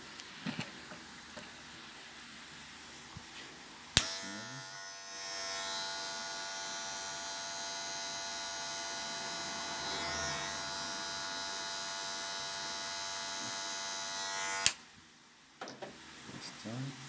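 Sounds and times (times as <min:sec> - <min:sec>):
hair clipper motor hum: 0:04.0 - 0:14.8.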